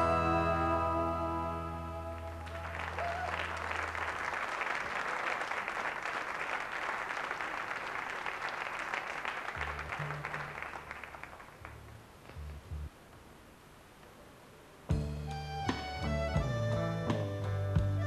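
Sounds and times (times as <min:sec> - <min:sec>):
band chord ringing: 0:00.0 - 0:02.4
low bass notes: 0:00.0 - 0:02.9, 0:11.7 - 0:12.9, 0:14.9 - 0:18.0
audience applauding: 0:02.1 - 0:12.0.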